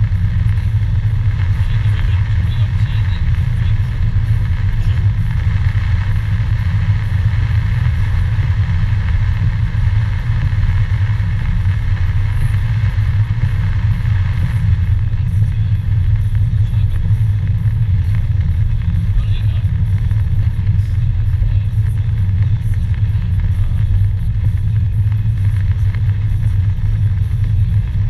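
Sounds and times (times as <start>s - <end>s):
car driving drone: 0.0s - 28.0s.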